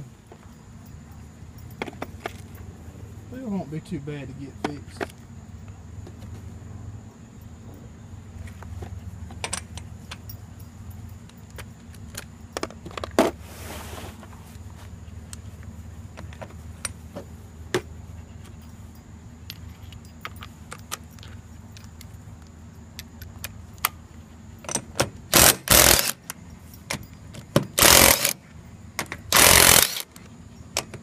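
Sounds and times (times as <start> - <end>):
tools clattering: 19.4 - 23.9, 24.6 - 28.4.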